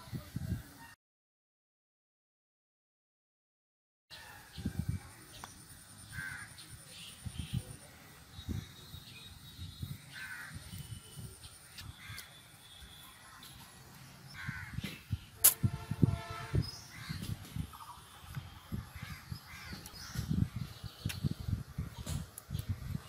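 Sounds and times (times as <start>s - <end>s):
crows cawing: 6.1s - 6.6s, 10.1s - 10.6s, 12.0s - 12.4s, 14.3s - 14.8s, 19.0s - 19.9s
sharp click: 14.8s - 15.7s.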